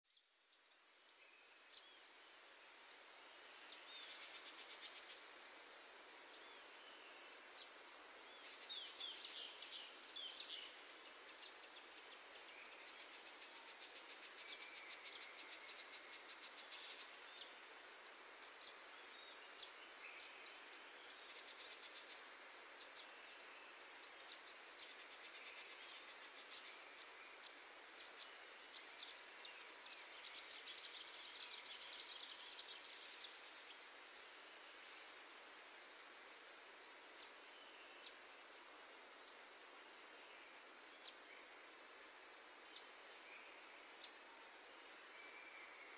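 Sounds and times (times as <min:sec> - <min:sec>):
faint steady hiss: 0:00.0 - 0:45.9
birds chirping: 0:00.1 - 0:35.0.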